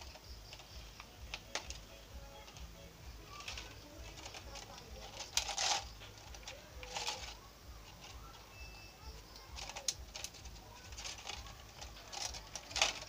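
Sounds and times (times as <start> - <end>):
plastic bottle strips crinkling: 0.0 - 8.6, 9.2 - 13.0.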